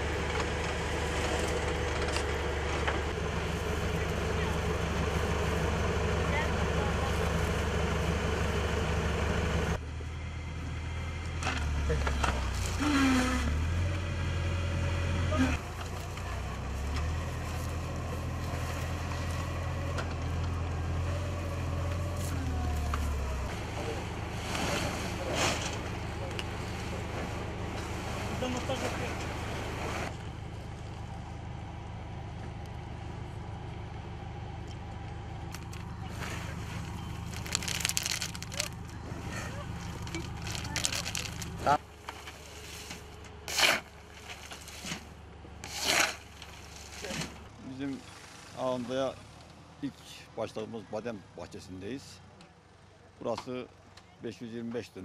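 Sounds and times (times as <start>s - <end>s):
tractor engine idling: 0.0s - 55.0s
rustling: 35.5s - 47.4s.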